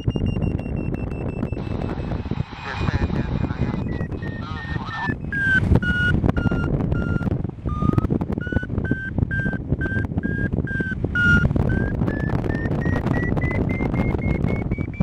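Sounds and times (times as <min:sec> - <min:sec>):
variometer beeping: 0:00.0 - 0:15.0
wind rushing on microphone: 0:00.0 - 0:15.0.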